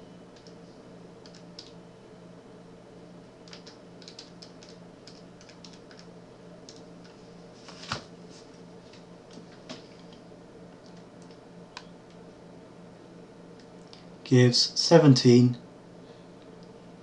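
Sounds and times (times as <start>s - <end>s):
low steady hum: 0.0s - 17.0s
keyboard keys clicking: 1.2s - 1.8s, 3.4s - 6.1s.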